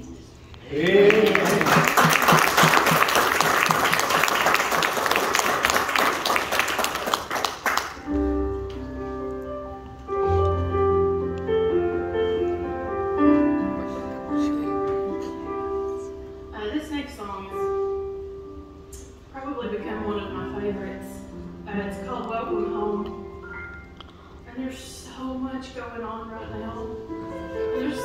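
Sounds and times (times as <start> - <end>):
audience applauding: 0.7 - 8.1
keyboard playing slow chords: 8.0 - 16.6.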